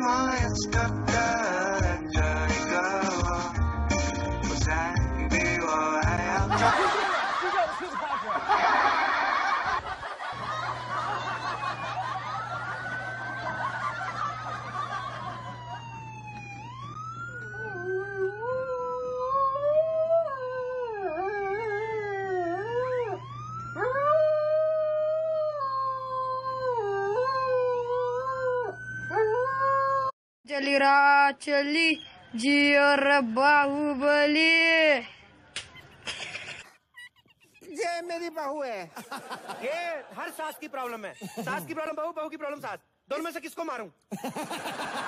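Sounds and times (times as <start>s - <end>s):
siren wailing: 10.4s - 30.1s
dog howling: 17.4s - 30.1s.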